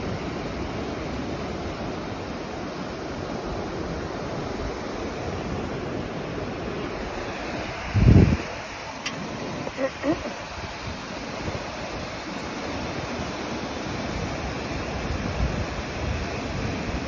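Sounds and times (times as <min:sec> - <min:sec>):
ocean surf rushing: 0:00.0 - 0:17.0.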